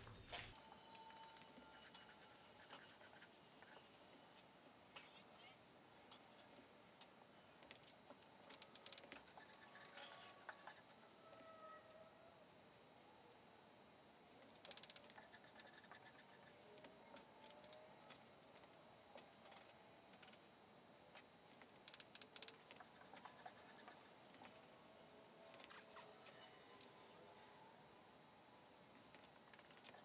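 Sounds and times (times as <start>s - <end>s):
rapid clicking: 14.5s - 15.3s, 21.7s - 24.5s.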